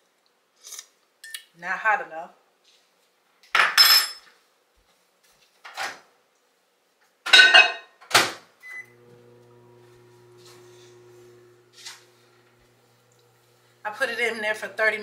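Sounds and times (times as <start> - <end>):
microwave oven humming: 8.6 - 15.0.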